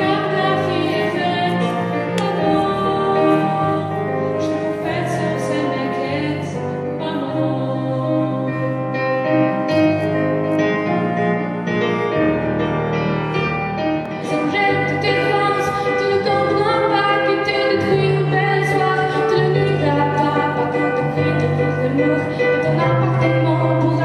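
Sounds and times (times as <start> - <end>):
instrumental accompaniment: 0.0 - 24.0
girl singing: 14.2 - 24.0.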